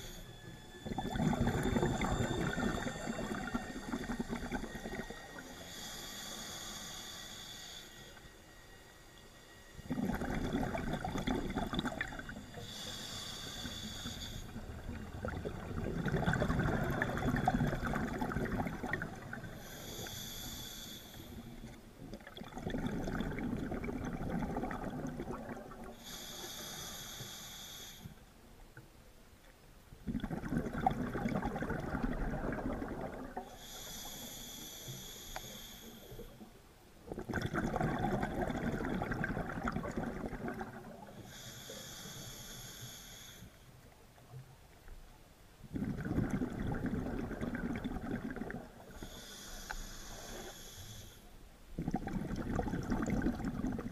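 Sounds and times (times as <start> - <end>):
regulator inhale hiss: 0.0 - 9.9, 11.3 - 15.0, 18.9 - 21.8, 25.9 - 28.4, 33.4 - 36.6, 41.0 - 43.9, 48.8 - 51.5
exhaled bubbles rumbling: 0.7 - 5.4, 9.8 - 12.7, 14.4 - 19.7, 22.0 - 26.0, 30.0 - 33.5, 37.0 - 41.1, 45.6 - 49.2, 51.7 - 53.9.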